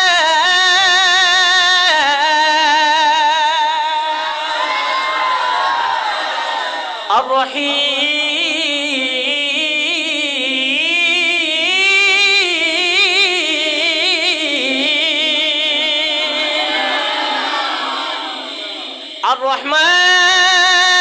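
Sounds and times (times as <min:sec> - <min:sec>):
man singing unaccompanied: 0:00.0 - 0:04.2, 0:07.1 - 0:16.6, 0:19.0 - 0:21.0.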